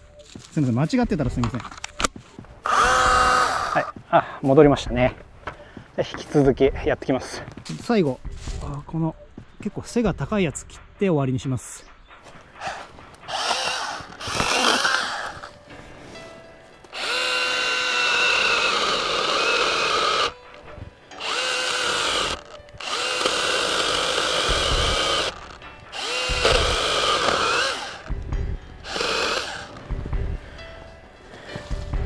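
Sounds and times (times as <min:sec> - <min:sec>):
chainsaw cutting wood: 0:02.6 - 0:03.9, 0:13.3 - 0:15.5, 0:16.9 - 0:20.4, 0:21.2 - 0:28.1, 0:28.8 - 0:29.8.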